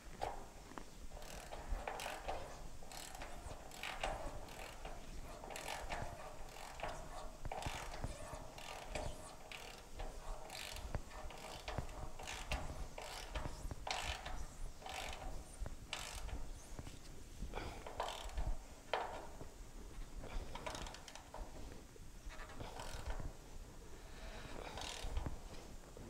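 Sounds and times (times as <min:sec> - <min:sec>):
ratchet wrench clicking: 0:01.1 - 0:16.6, 0:17.8 - 0:19.2, 0:20.5 - 0:21.4, 0:22.6 - 0:23.2, 0:24.6 - 0:25.3.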